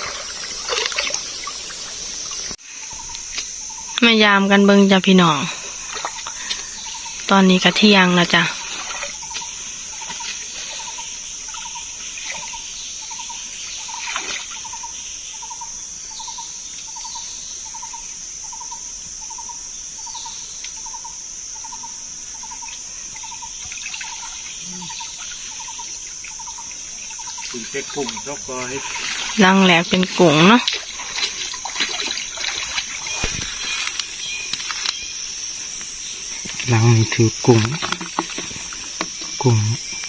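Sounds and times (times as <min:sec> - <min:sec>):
faint trickling water: 0:00.0 - 0:14.8, 0:22.4 - 0:34.9
high insect drone: 0:00.0 - 0:40.0
short pulsed insect call: 0:00.0 - 0:40.0.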